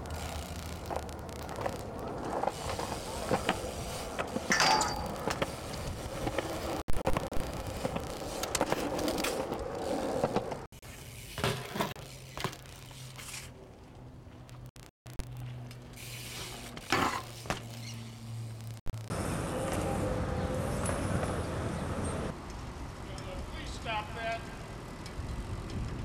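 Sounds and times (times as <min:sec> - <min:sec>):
bike tyres rolling on concrete: 0:00.0 - 0:26.0
bike clicks and knocks: 0:00.2 - 0:10.7, 0:11.3 - 0:18.6.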